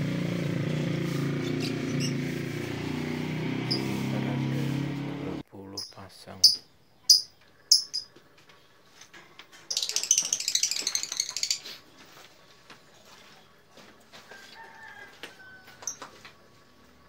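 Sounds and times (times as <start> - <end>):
lovebirds chirping and chattering: 1.4 - 2.2, 5.5 - 13.6.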